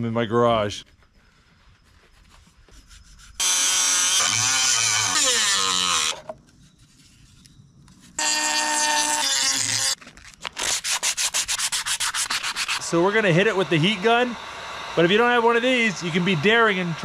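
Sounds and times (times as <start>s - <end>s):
sandpaper rubbing on horn: 1.8s - 3.4s, 4.9s - 8.2s, 10.6s - 14.0s
rotary tool cutting horn: 3.1s - 10.0s, 10.6s - 17.0s.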